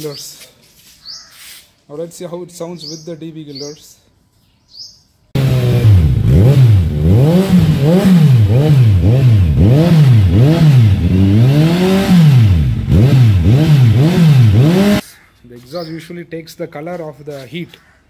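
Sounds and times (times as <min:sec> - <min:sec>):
motorcycle engine revving: 0:05.4 - 0:15.0.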